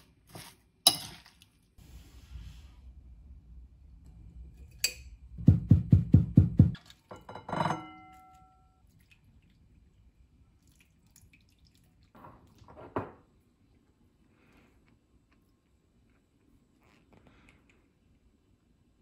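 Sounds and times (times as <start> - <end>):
glass clink: 7.1 - 8.8.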